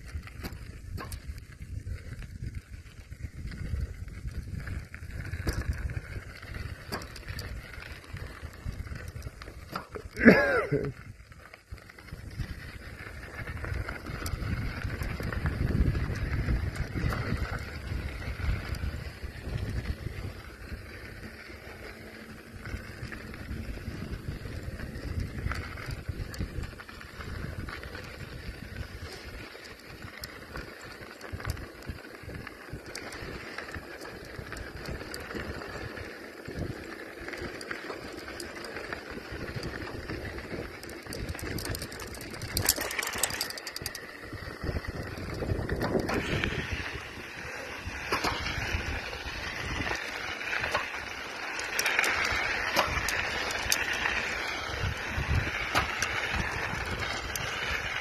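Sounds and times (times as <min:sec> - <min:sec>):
bicycle tyres rolling on road: 0:00.0 - 0:58.0
crackling: 0:00.0 - 0:58.0
wind buffeting microphone: 0:00.0 - 0:58.0.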